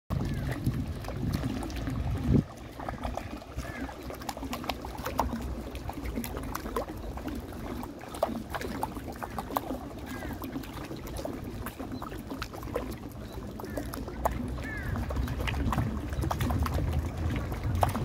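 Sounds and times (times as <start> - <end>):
fountain water cascading over steps: 3.7 - 18.0.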